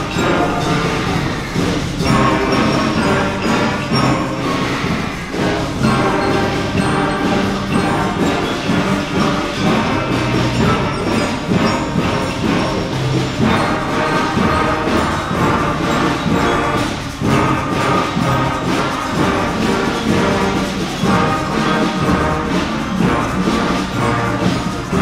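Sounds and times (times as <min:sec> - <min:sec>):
school concert band playing: 0:00.0 - 0:25.0.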